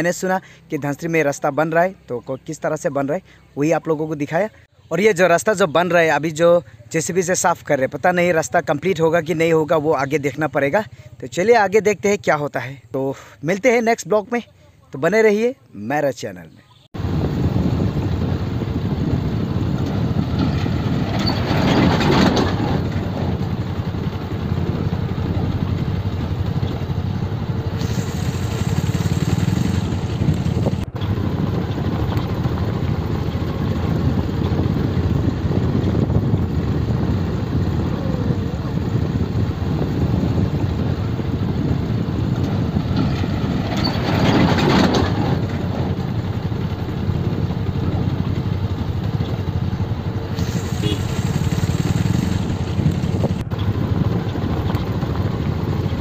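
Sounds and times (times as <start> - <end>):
wind and road noise: 0.0 - 56.0
motorcycle engine running: 17.0 - 56.0.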